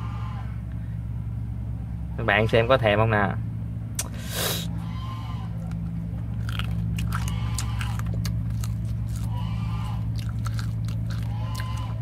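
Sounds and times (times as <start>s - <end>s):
crunchy chewing: 4.0s - 12.0s.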